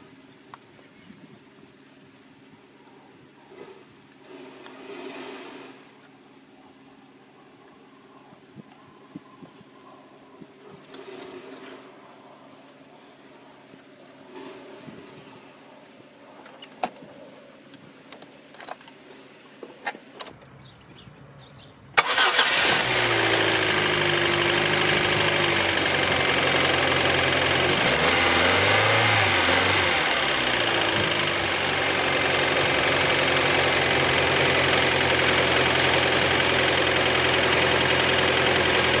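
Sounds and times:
car engine starting and idling: 0:22.0 - 0:39.0.

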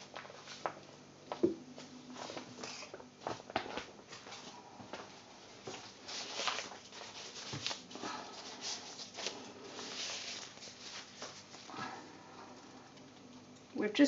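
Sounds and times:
icing bag rustling and scraping: 0:05.5 - 0:12.1.

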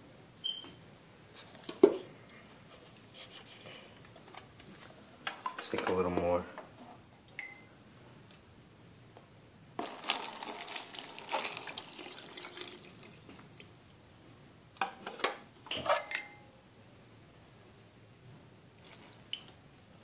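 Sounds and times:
water pouring and splashing: 0:09.8 - 0:13.3.

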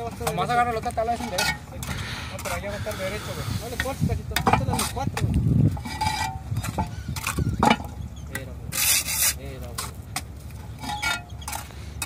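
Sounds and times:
concrete blocks knocking: 0:03.8 - 0:08.9
trowel scraping on mortar: 0:08.7 - 0:10.0.

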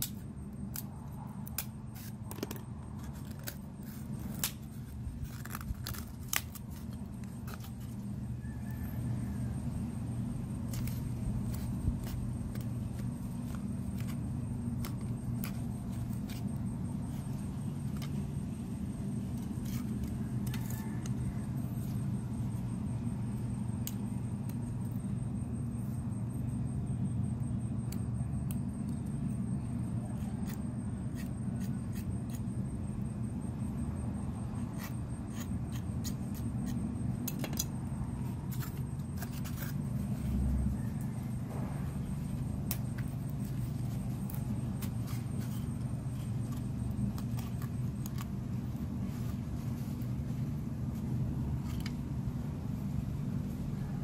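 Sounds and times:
steady low hum: 0:00.0 - 0:54.0.

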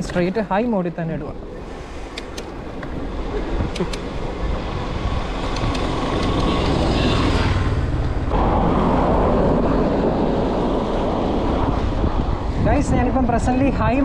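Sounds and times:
wind rumble on microphone: 0:00.0 - 0:14.0
car passing: 0:02.6 - 0:12.6.

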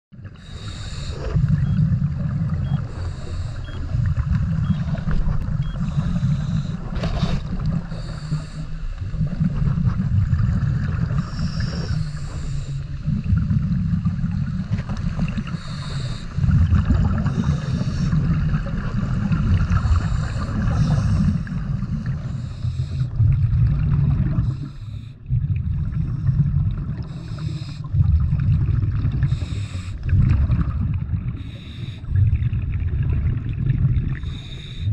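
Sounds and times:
exhaled bubbles: 0:00.1 - 0:34.9
regulator inhale hiss: 0:00.4 - 0:01.6, 0:02.8 - 0:04.0, 0:05.8 - 0:09.2, 0:11.2 - 0:13.0, 0:15.4 - 0:16.5, 0:17.2 - 0:18.3, 0:19.8 - 0:21.5, 0:22.1 - 0:23.2, 0:24.4 - 0:25.2, 0:27.0 - 0:27.9, 0:29.2 - 0:30.0, 0:31.4 - 0:32.1, 0:34.2 - 0:34.9.

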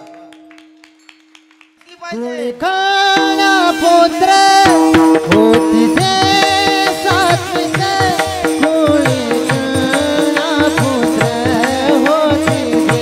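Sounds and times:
men singing: 0:02.1 - 0:13.0
drumming: 0:03.1 - 0:13.0.

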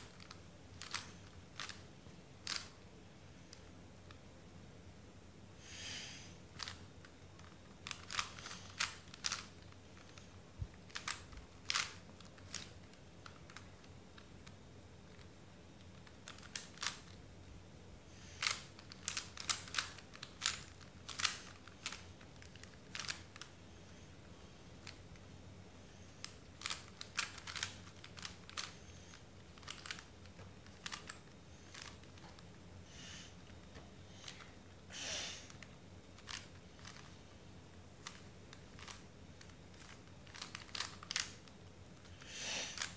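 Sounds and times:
plastic puzzle cube clicking: 0:00.1 - 0:01.8, 0:02.4 - 0:02.8, 0:07.4 - 0:10.1, 0:10.9 - 0:14.3, 0:15.9 - 0:17.2, 0:18.4 - 0:23.5, 0:26.2 - 0:32.4, 0:35.5 - 0:37.1, 0:38.0 - 0:41.5, 0:42.6 - 0:42.9.

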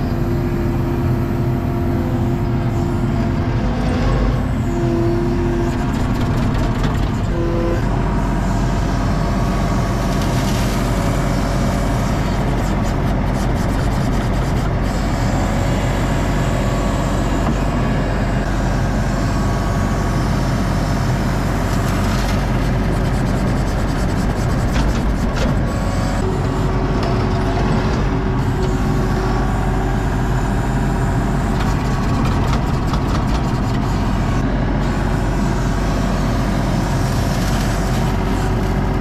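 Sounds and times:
diesel engine running: 0:00.0 - 0:39.0.

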